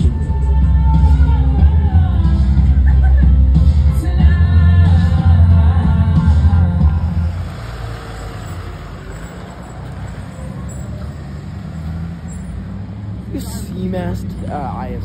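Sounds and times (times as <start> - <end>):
pop music with singing: 0.0 - 8.7
pickup truck engine rumble: 0.0 - 15.0.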